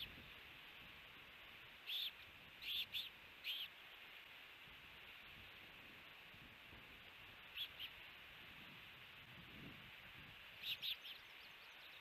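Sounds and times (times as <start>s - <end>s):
faint hiss: 0.0s - 12.0s
osprey chirping: 1.8s - 3.8s, 7.5s - 8.0s, 10.6s - 12.0s.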